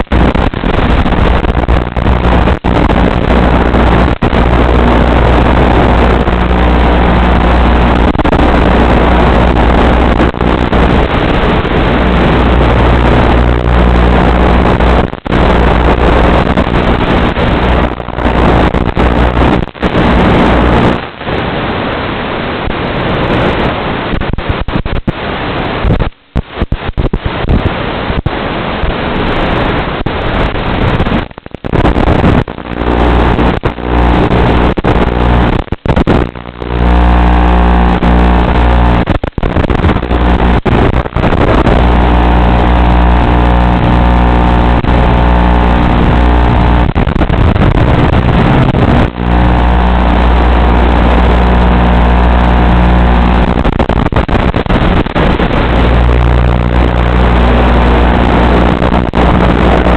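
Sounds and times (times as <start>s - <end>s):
low hum: 0.0s - 21.2s, 30.8s - 59.9s
wind rush: 0.0s - 59.9s
electric motor and propeller buzzing: 36.2s - 39.1s, 41.6s - 46.9s, 47.9s - 53.6s.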